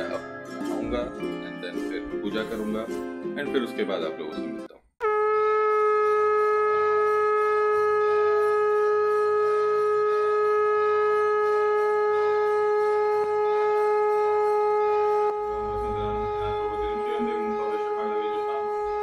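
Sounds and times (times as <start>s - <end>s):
conch shell blown: 5.0s - 19.0s.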